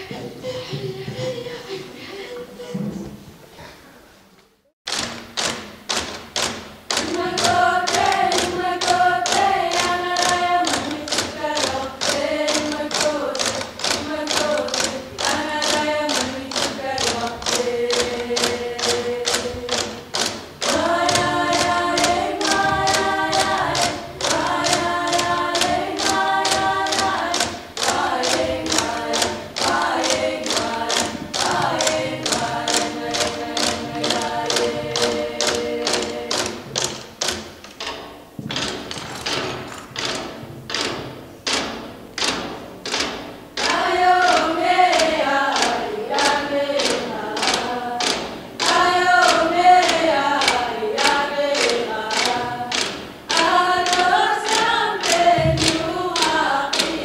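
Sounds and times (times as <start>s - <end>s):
frame drums beaten with sticks: 4.9s - 57.0s
group singing in unison: 6.9s - 37.9s, 43.0s - 57.0s.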